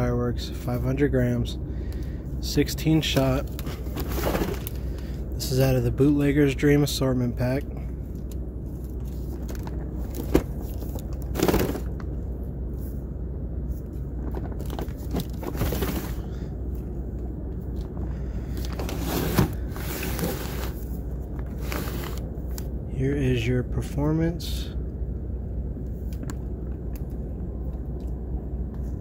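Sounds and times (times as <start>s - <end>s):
steady low hum: 0.0s - 29.0s
cardboard box rustling and scraping: 3.6s - 4.8s, 9.0s - 12.0s, 14.2s - 16.2s, 18.7s - 22.2s.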